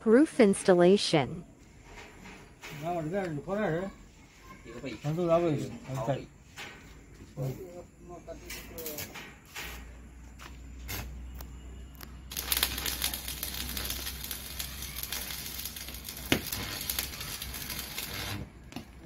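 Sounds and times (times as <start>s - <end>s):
welding arc crackling: 10.9s - 19.0s.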